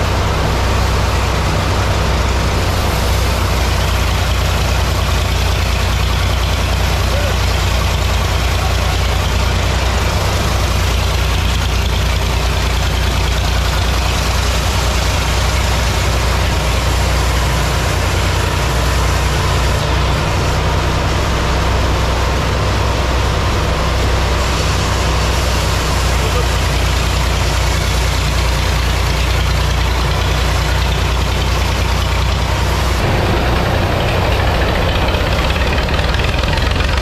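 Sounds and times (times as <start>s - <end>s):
band saw machine drone: 32.1s - 37.0s.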